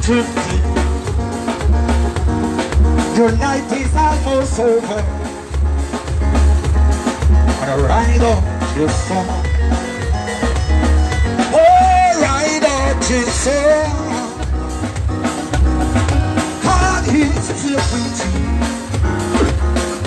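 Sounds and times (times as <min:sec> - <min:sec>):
person singing: 0:00.0 - 0:01.0, 0:03.1 - 0:05.3, 0:11.4 - 0:14.5, 0:16.6 - 0:19.6
heavy bass beat: 0:00.0 - 0:20.0.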